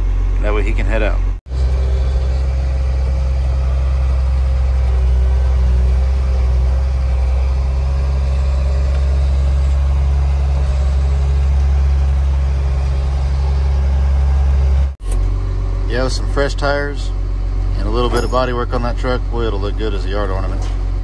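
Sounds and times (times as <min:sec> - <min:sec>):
loader engine droning: 0:00.0 - 0:21.0.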